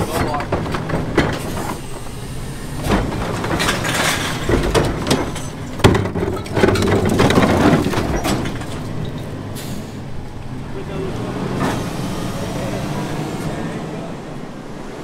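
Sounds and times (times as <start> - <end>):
loud clatter: 0.0 - 2.0, 2.7 - 9.3
diesel engine running: 0.0 - 15.0
knocks: 2.8 - 8.8.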